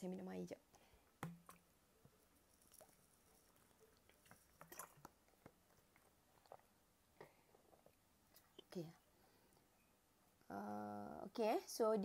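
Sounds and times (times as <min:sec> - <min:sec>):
person sipping and swallowing: 0:02.7 - 0:08.7.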